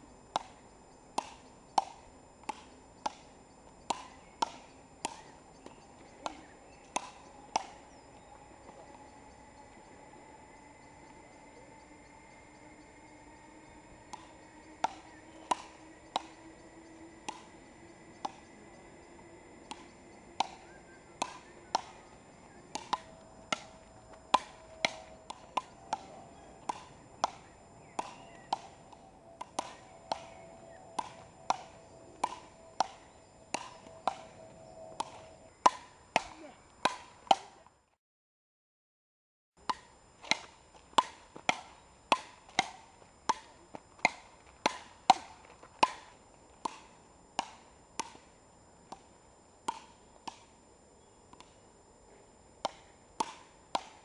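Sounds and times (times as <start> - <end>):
wooden paddles hitting ball: 1.2 - 3.3, 3.9 - 7.9, 19.7 - 22.0, 22.7 - 37.5, 49.7 - 50.5, 52.6 - 54.0.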